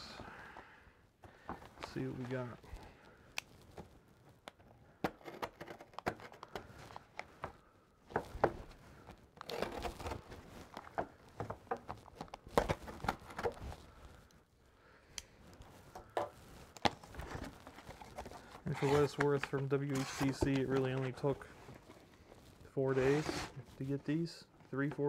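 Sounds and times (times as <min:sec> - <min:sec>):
tape tearing: 0:09.4 - 0:10.8, 0:16.8 - 0:21.4, 0:22.9 - 0:23.7
cardboard scraping and rustling: 0:16.9 - 0:22.1, 0:22.8 - 0:23.7.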